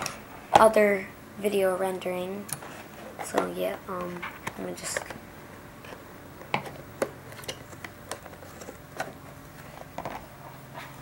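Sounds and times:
stiff packaging clicking and crackling: 5.8s - 10.3s.

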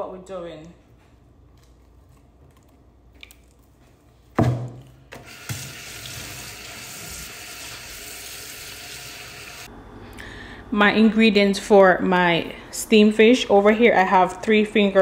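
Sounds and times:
faucet running into sink: 5.2s - 9.7s.

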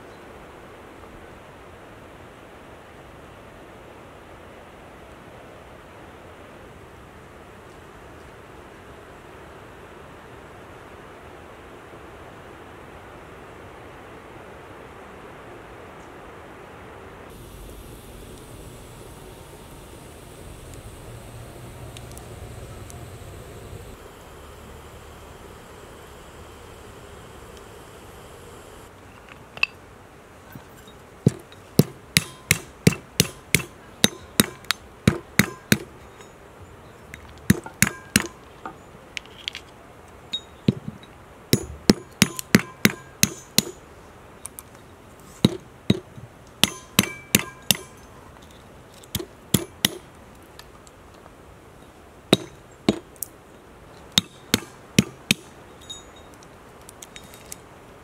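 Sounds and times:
pestle knocking cracking walnuts: 31.3s - 35.9s, 54.1s - 55.5s.

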